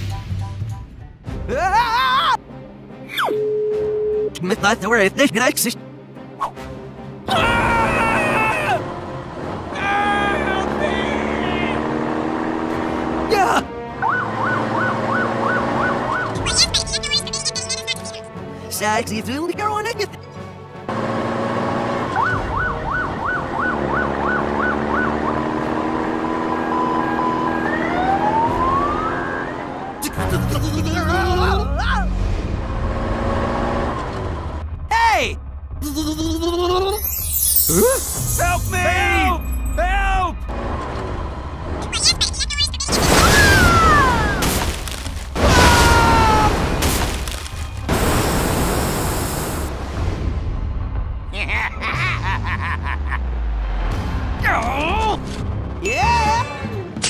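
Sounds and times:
police siren warbling: 14.0s - 18.1s, 22.1s - 25.7s, 26.4s - 32.0s
rushing rumbling sound effects: 47.8s - 51.5s.

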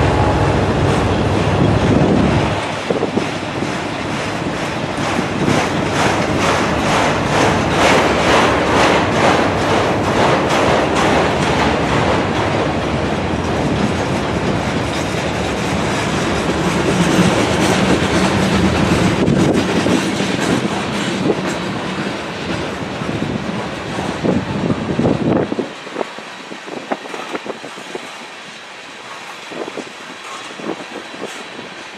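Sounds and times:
clickety-clack over rail joints: 0.0s - 31.9s
freight train wheels rumbling: 0.0s - 31.9s.

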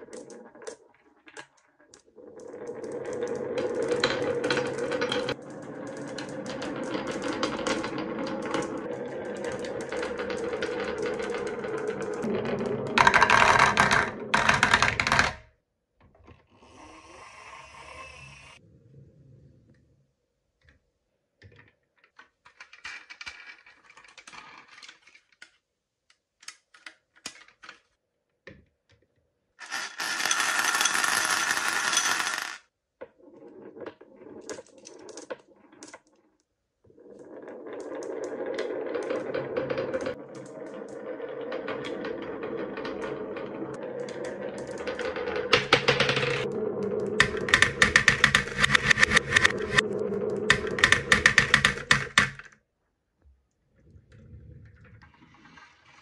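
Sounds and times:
marbles rolling down wooden track: 0.0s - 15.5s, 29.6s - 52.5s
glass marbles clicking: 29.6s - 32.6s
marbles rattling in ceramic bowl: 29.6s - 32.6s, 41.8s - 52.0s.

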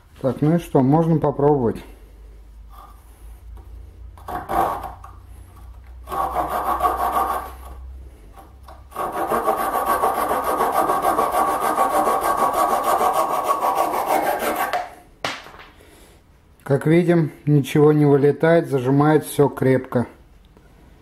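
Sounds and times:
hand sawing wooden dowel: 4.2s - 15.0s.

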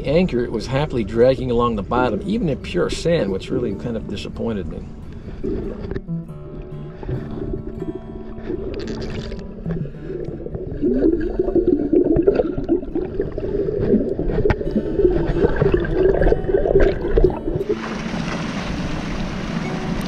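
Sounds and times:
underwater gurgling and bubbling: 5.1s - 20.0s
rush of wind and water: 10.8s - 20.0s.

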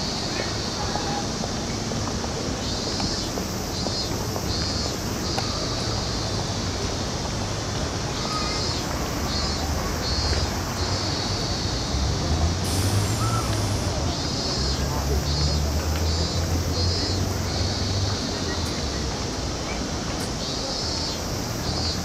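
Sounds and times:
low traffic rumble: 0.0s - 22.0s.

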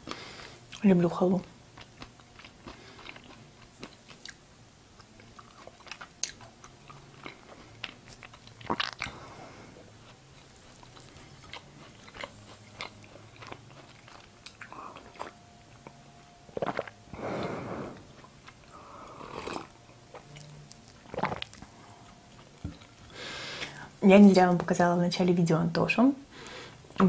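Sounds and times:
chewing: 1.8s - 9.3s, 9.9s - 16.0s, 16.6s - 17.0s, 18.2s - 23.7s.

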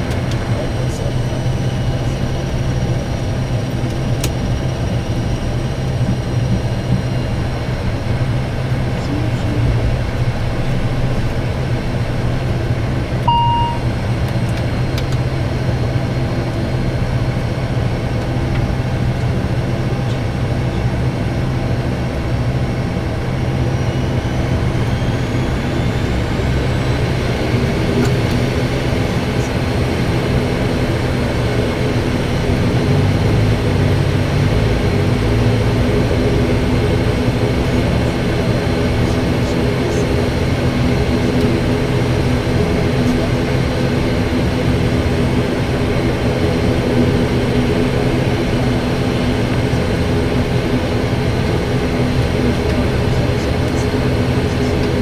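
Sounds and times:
faint rising propeller whine: 0.0s - 55.0s
turboprop engines droning: 0.0s - 55.0s
short electronic beep: 13.3s - 13.9s.

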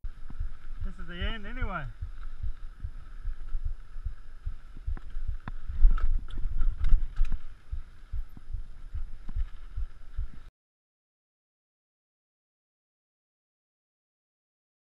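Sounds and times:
wind thumping on microphone: 0.0s - 10.5s
bike tyres rumbling on dirt: 0.1s - 10.5s
bike clicks and rattles: 4.6s - 8.5s.

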